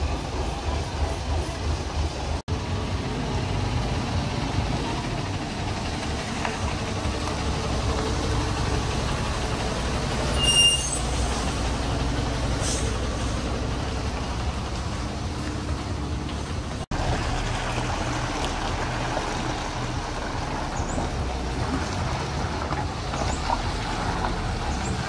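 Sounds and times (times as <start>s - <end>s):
diesel engine rumbling: 0.0s - 25.0s
high-pitched squeal: 9.5s - 11.9s.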